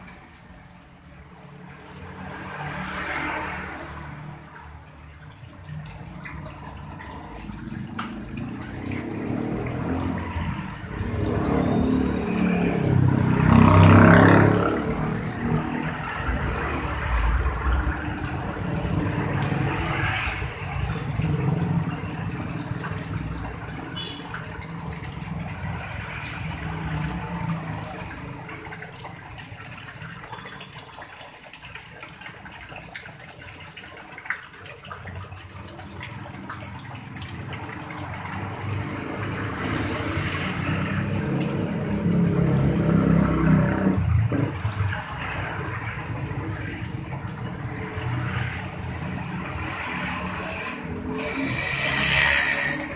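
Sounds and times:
water splashing into pond: 0.0 - 52.9.

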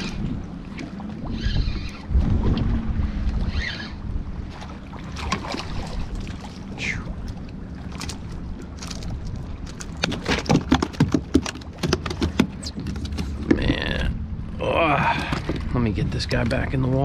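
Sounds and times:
wind on microphone: 0.0 - 7.4
water lapping around a kayak: 0.0 - 17.0
clicks and knocks: 9.7 - 13.6.

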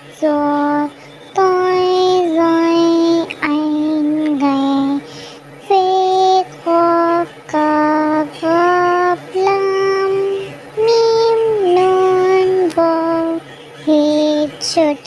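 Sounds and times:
child singing letter names: 0.2 - 5.1, 5.7 - 15.0.

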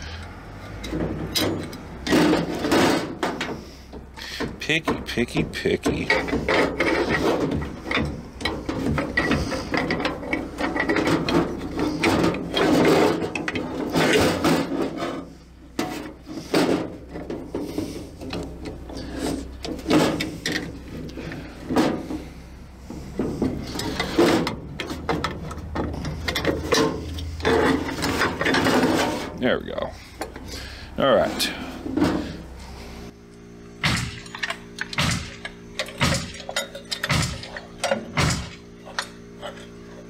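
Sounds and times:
metal brake hardware scraping and clinking: 0.8 - 22.3, 23.0 - 29.4, 34.2 - 39.8.

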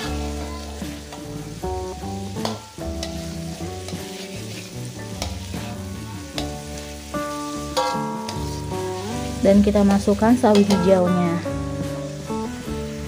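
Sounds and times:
metal spatula scraping a wok: 0.0 - 1.4, 2.4 - 9.5, 10.4 - 11.1
background music: 0.0 - 13.0
oil sizzling: 0.0 - 13.0.

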